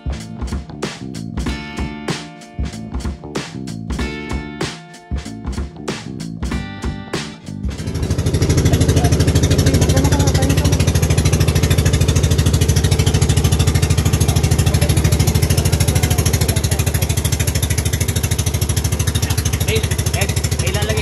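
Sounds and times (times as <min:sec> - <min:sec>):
boat engine running: 0:05.4 - 0:21.0.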